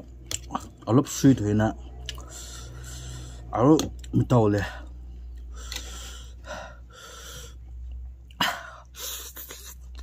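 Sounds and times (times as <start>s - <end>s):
person breathing hard: 5.5s - 7.8s.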